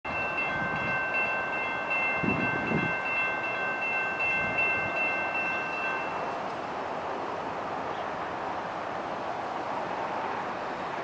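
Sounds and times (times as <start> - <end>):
crossing warning bell ringing: 0.1 - 6.3
wind buffeting microphone: 0.1 - 7.8.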